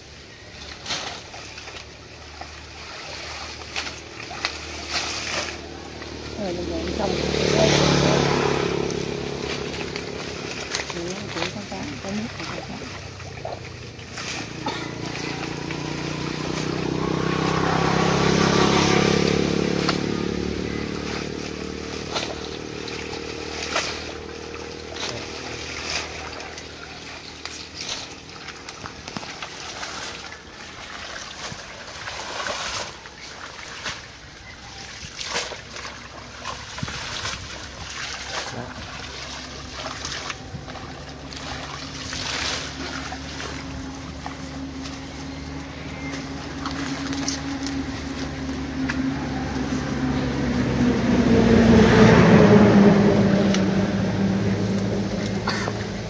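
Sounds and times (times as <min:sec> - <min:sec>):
water sloshing and splashing: 0:00.0 - 0:56.0.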